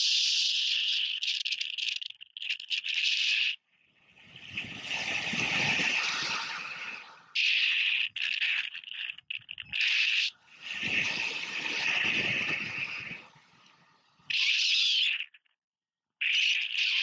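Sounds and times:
wind rushing over microphone: 4.2s - 7.3s, 10.5s - 13.6s.

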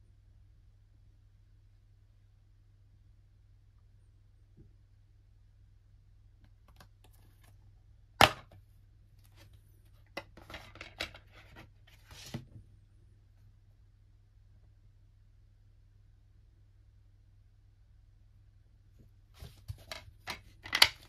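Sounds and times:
plastic clicks and rattles: 19.8s - 21.0s.

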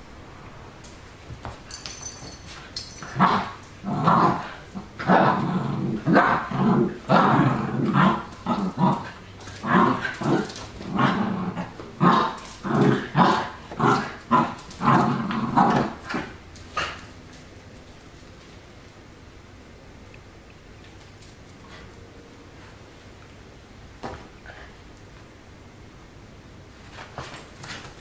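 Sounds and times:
dogs growling and barking: 2.9s - 17.3s.

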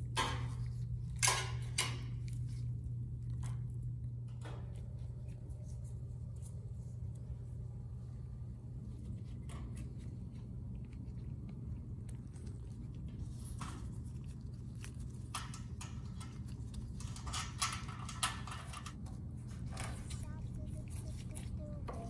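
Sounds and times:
low hum: 0.0s - 22.0s
bolt and nut clicking and scraping: 17.0s - 19.0s.

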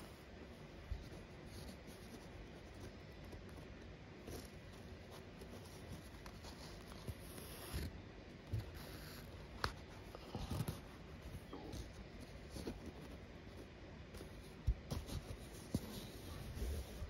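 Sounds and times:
thread drawn through canvas: 5.1s - 7.9s.

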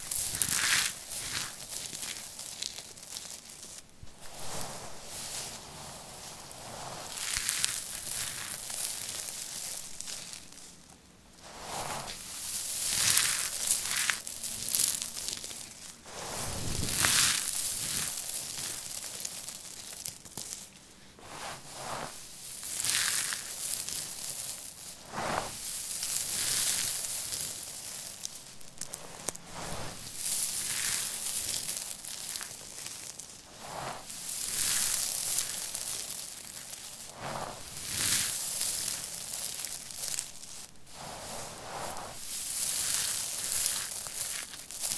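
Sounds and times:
shredded soap crackling: 0.0s - 11.0s, 11.6s - 21.1s, 21.8s - 44.9s.

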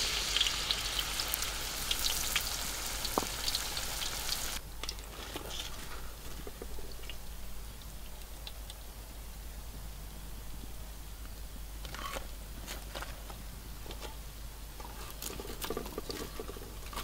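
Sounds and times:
oil sizzling in wok: 0.0s - 4.6s
oil crackles and pops: 0.0s - 7.2s, 14.8s - 17.0s.

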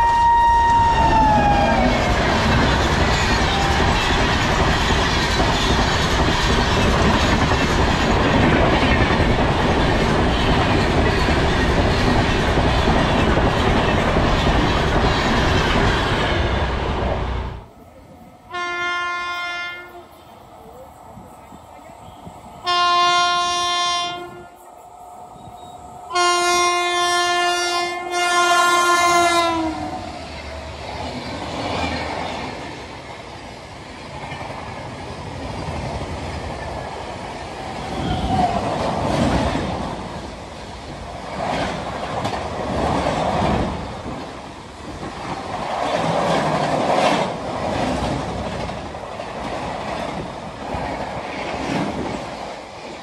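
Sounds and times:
train wheels clattering on rails: 1.8s - 17.2s, 33.9s - 53.0s
locomotive horn blasts: 18.5s - 20.2s, 22.6s - 24.6s, 26.1s - 29.9s.

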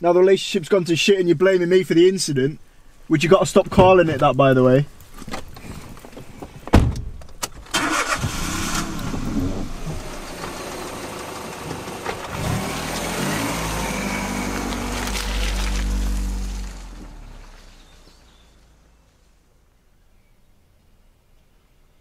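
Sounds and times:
tires on loose dirt: 0.0s - 19.8s
car engine starting and revving: 7.7s - 19.1s.

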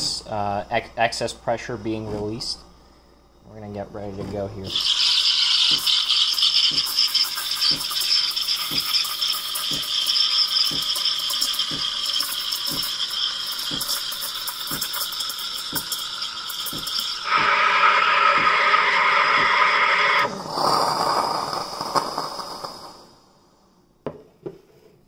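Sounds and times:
steam wand frothing milk: 3.7s - 23.2s.

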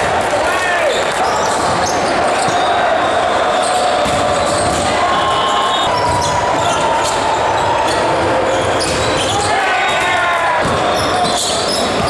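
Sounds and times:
reverberant gym hall din: 0.0s - 12.0s
volleyballs smacking: 4.0s - 5.0s, 10.0s - 10.9s.

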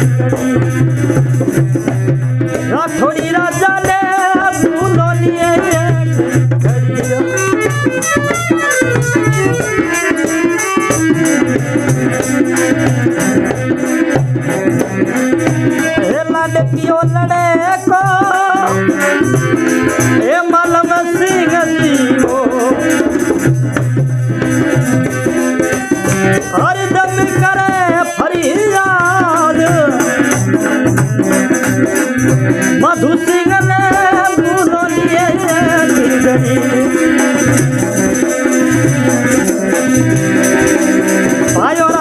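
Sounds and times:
hand drum rhythm: 0.0s - 42.0s
man singing: 2.4s - 8.3s, 15.7s - 23.5s, 25.6s - 31.0s, 32.2s - 39.5s, 41.4s - 42.0s.

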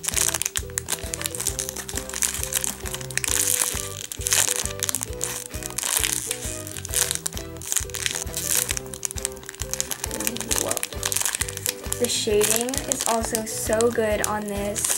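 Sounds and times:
background music: 0.0s - 14.9s
plastic bag crinkling: 0.0s - 14.9s.

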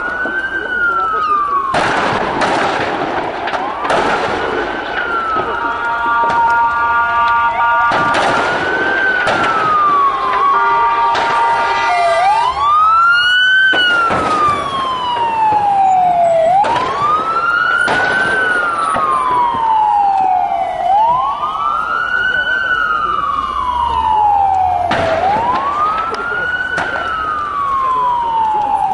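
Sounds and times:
emergency siren wailing: 0.0s - 28.9s
second siren steady tone: 5.0s - 8.1s, 8.8s - 17.9s.

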